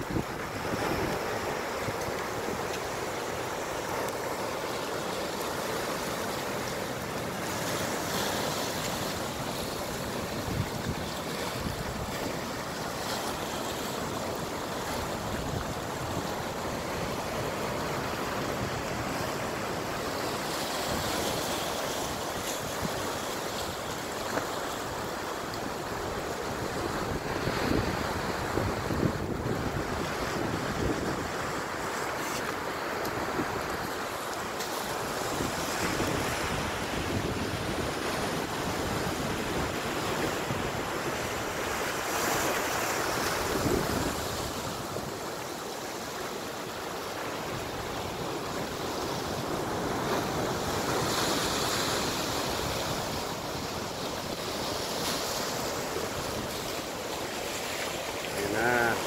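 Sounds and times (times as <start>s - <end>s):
waves breaking on rocky shore: 0.0s - 59.0s
wind buffeting microphone: 26.7s - 31.6s.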